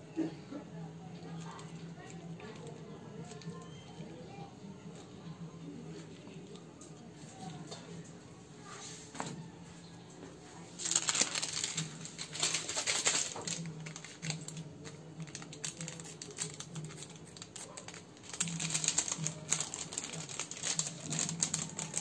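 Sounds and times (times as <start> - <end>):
plastic packets crinkling: 10.8 - 22.0.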